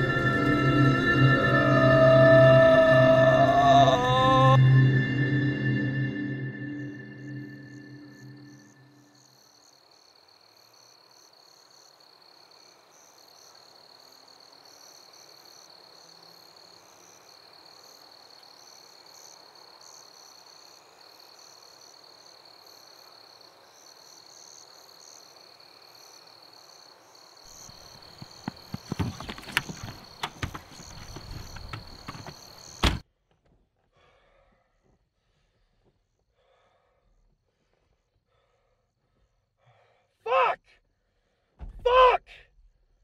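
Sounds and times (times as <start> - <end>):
thin high tone: 0.0 - 9.0
irregular knocks and thumps: 27.7 - 33.0.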